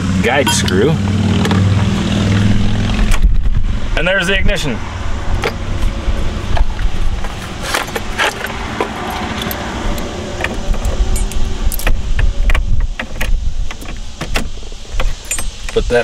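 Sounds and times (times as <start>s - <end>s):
steady low rumble: 0.0s - 4.0s
key ring jangling: 11.1s - 11.9s, 15.2s - 15.5s.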